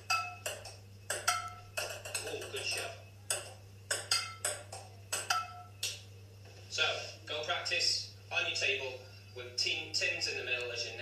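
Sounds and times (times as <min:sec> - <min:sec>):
table tennis ball clicks: 0:00.0 - 0:06.0.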